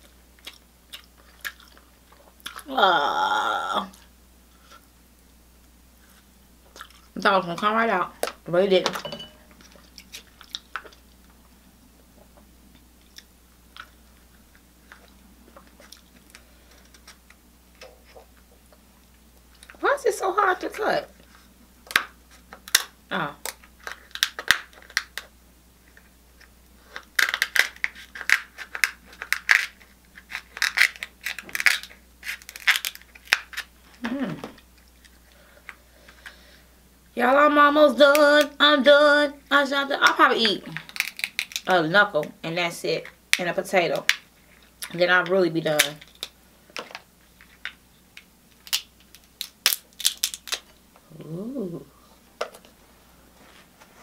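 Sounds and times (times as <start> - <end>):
person humming: 2.6 - 4.0, 34.0 - 34.6, 51.0 - 52.2
crab shell cracking and crunching: 9.6 - 11.4, 21.8 - 34.0, 40.8 - 41.7, 45.8 - 50.8.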